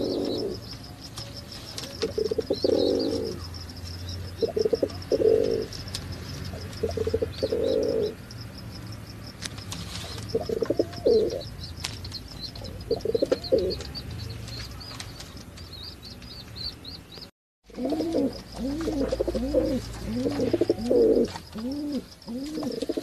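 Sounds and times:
pigeons cooing: 0.0s - 3.6s, 4.3s - 5.8s, 6.5s - 8.2s, 10.0s - 11.5s, 12.5s - 14.0s, 17.7s - 23.0s
small bird chirping: 0.0s - 23.0s.

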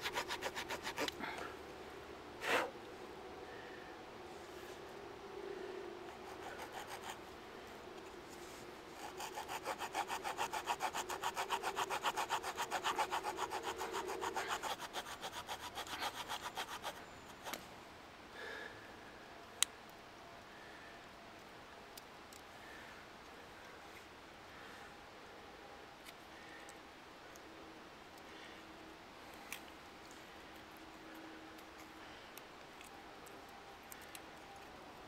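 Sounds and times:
small saw cutting wood: 0.0s - 1.3s, 6.2s - 7.2s, 9.0s - 17.6s.

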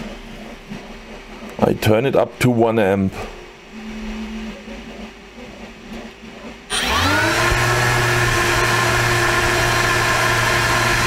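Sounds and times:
drone motor whine: 6.7s - 11.0s.

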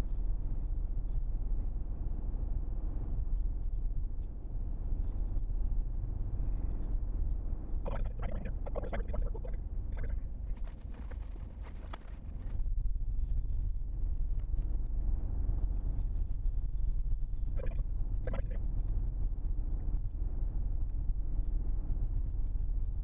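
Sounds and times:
garbled voice: 7.9s - 10.2s, 17.6s - 18.6s.

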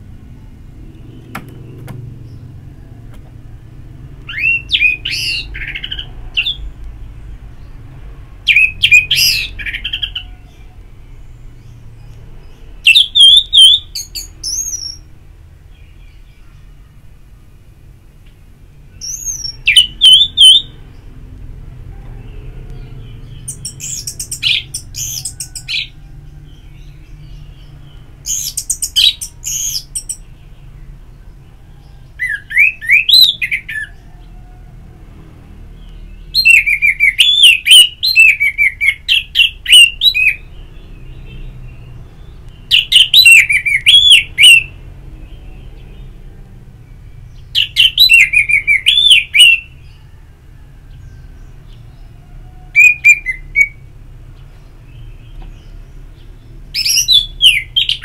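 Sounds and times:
thrush singing whistled phrases: 4.3s - 6.6s, 8.5s - 10.1s, 12.8s - 15.1s, 19.0s - 20.8s, 32.2s - 33.9s, 36.3s - 40.5s, 42.7s - 44.8s, 47.6s - 49.8s, 52.8s - 53.8s, 56.8s - 58.0s.

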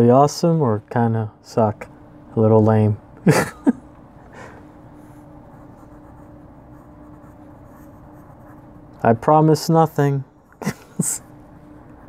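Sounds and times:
faint steady hum: 0.0s - 12.0s
pencil scratching on paper: 5.5s - 8.7s.

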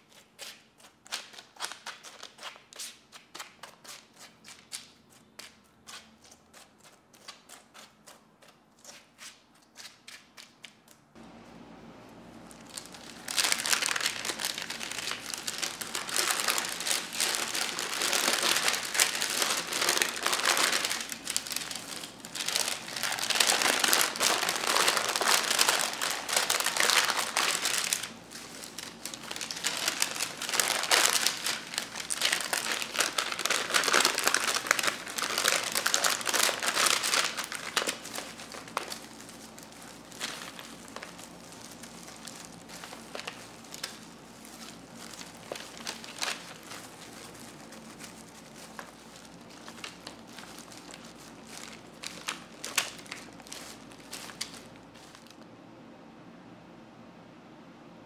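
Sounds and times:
thin plastic crinkling: 0.0s - 55.5s
cereal clusters crackling: 12.4s - 55.4s.

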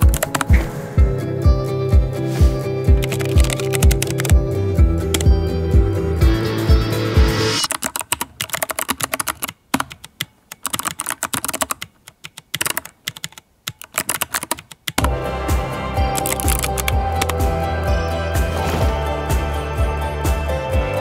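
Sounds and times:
fast typing on mechanical keyboard: 0.0s - 0.6s, 3.0s - 4.4s, 7.6s - 15.1s, 16.1s - 17.4s
background music with a beat: 0.0s - 7.7s, 15.0s - 21.0s.

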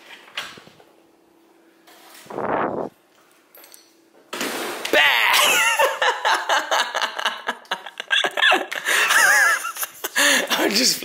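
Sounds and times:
woman laughing and shrieking: 5.0s - 6.8s, 8.0s - 10.2s.

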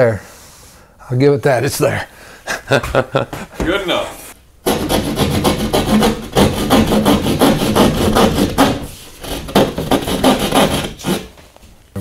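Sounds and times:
hand saw cutting drywall: 4.6s - 11.3s.

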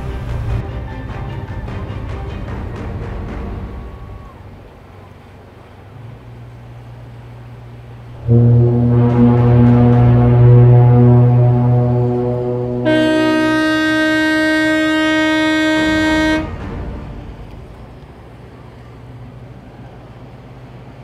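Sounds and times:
deep boat horn blast: 5.9s - 19.1s
low drone: 6.0s - 20.9s
higher-pitched boat horn: 8.0s - 18.4s.

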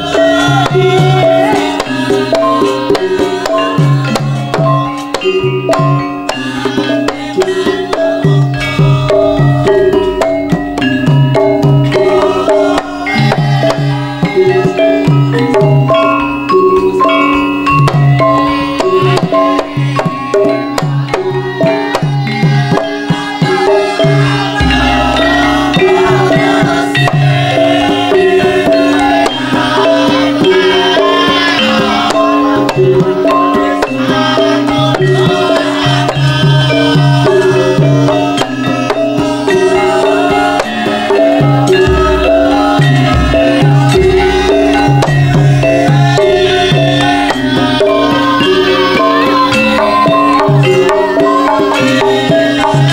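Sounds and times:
hand drum pattern: 0.0s - 52.9s
metallophone notes: 0.0s - 52.9s
deep low drum stroke: 8.6s - 12.7s, 24.6s - 27.3s, 41.7s - 47.0s.

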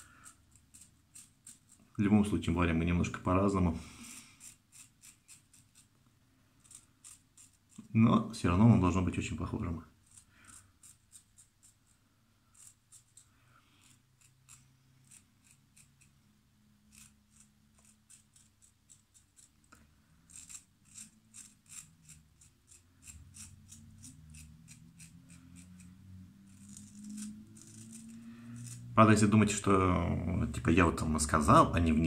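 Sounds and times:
razor scraping stubble: 0.0s - 2.3s, 3.9s - 5.9s, 6.6s - 8.0s, 9.6s - 16.2s, 16.9s - 29.6s.

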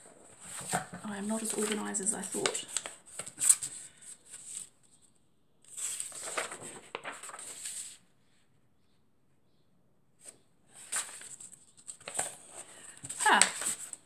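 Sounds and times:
paper rustling: 0.0s - 5.1s, 5.7s - 8.1s, 10.2s - 14.0s.

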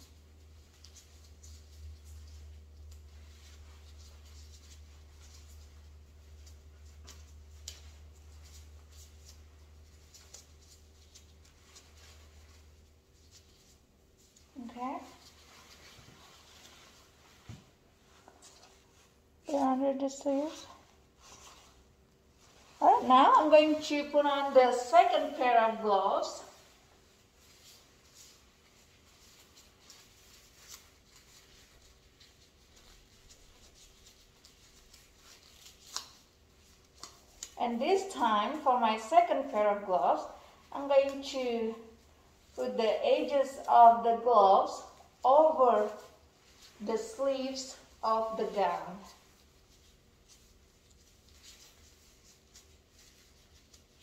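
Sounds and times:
soft scuffs: 0.0s - 19.7s, 20.3s - 23.8s
gown and gloves rustling: 0.0s - 54.0s
low steady hum: 0.0s - 54.0s.

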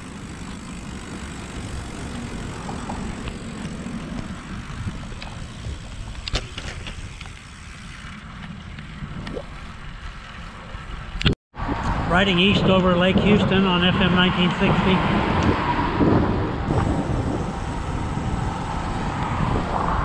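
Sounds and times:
wind rushing over microphone: 11.0s - 20.0s.

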